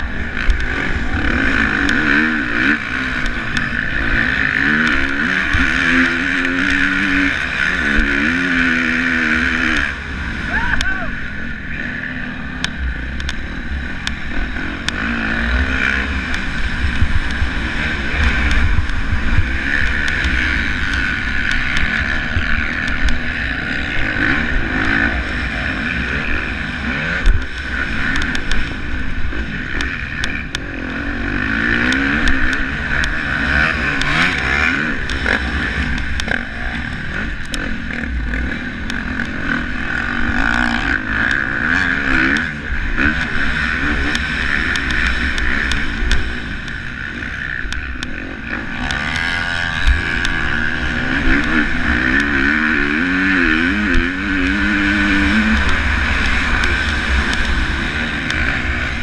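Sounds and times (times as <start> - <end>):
motocross bike engine revving: 0.0 - 59.0
wind rumble on microphone: 16.0 - 25.3.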